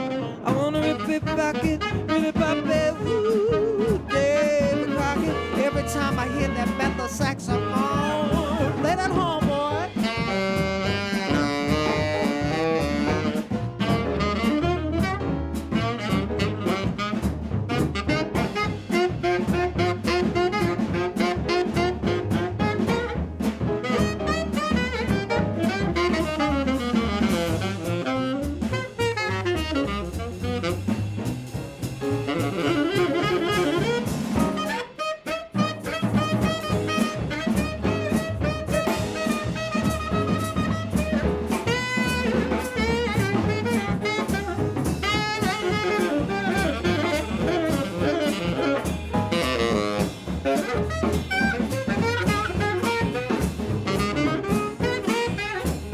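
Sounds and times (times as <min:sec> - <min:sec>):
tenor saxophone solo: 0:00.0 - 0:31.3, 0:32.0 - 0:55.9
drums: 0:00.0 - 0:55.9
piano: 0:00.0 - 0:55.9
upright bass: 0:00.0 - 0:55.9.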